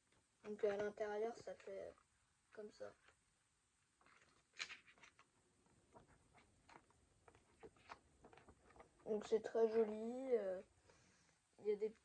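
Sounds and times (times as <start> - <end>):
paper pages rustling: 4.0 - 10.4.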